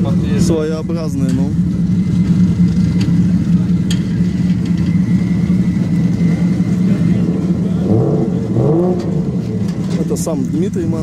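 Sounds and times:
car engine idling: 0:00.0 - 0:11.0.

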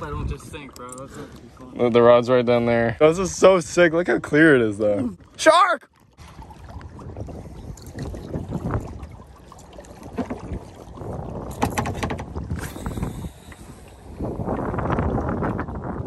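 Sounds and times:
wind rumbling on microphone: 0:00.0 - 0:00.8, 0:06.2 - 0:16.0
water lapping around kayak: 0:00.0 - 0:16.0.

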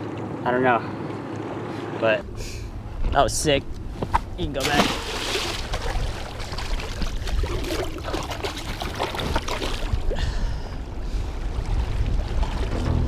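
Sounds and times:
steady low rumble: 0:02.2 - 0:08.1, 0:09.9 - 0:13.0
water lapping against rocks: 0:04.6 - 0:10.2.

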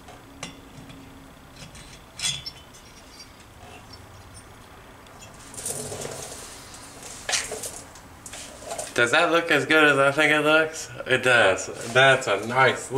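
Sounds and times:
metal scrape: 0:01.6 - 0:04.5.

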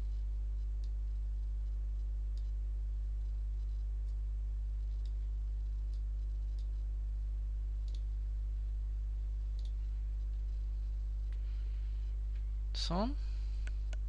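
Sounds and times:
steady low hum: 0:00.0 - 0:14.0
computer mouse clicks: 0:00.8 - 0:02.6, 0:04.8 - 0:06.8, 0:07.8 - 0:08.1, 0:09.5 - 0:10.5.

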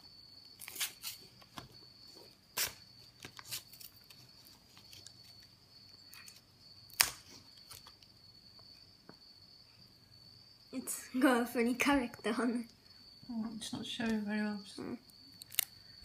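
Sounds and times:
faint high whine: 0:00.0 - 0:16.0
wrapper crinkling and snapping: 0:15.4 - 0:15.7.

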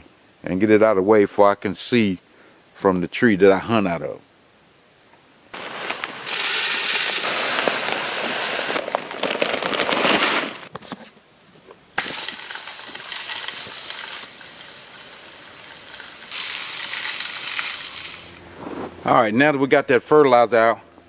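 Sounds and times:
crickets chirring: 0:00.0 - 0:21.0
pellets landing on dry ground: 0:05.6 - 0:11.0, 0:12.0 - 0:18.3.

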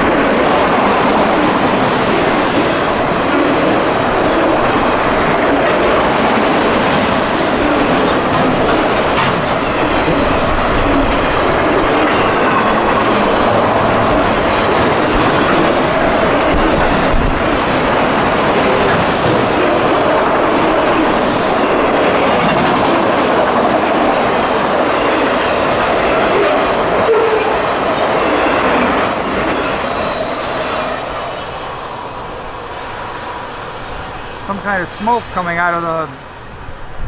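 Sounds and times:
freight train wheels rumbling on rails: 0:00.0 - 0:37.0
faint high squeal: 0:28.8 - 0:31.1.

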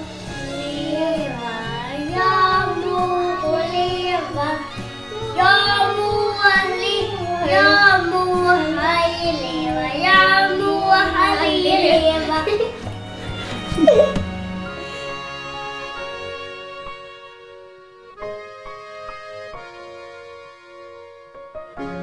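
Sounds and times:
child singing: 0:00.0 - 0:12.8
low accompanying notes: 0:00.0 - 0:22.0.

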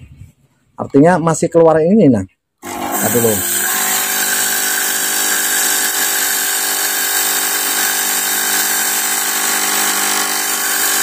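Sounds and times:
fog machine pump buzzing: 0:02.6 - 0:11.0.

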